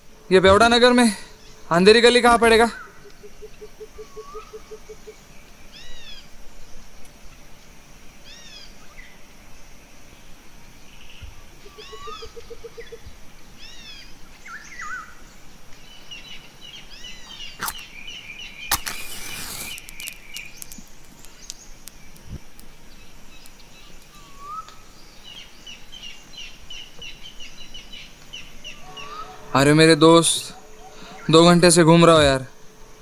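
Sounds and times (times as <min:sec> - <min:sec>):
small birds chirping: 0:00.0 - 0:29.6, 0:30.2 - 0:32.4
match scraping on matchbox: 0:17.6 - 0:17.8, 0:18.7 - 0:22.0
match strike flaring with hiss: 0:17.6 - 0:17.9, 0:18.6 - 0:24.1.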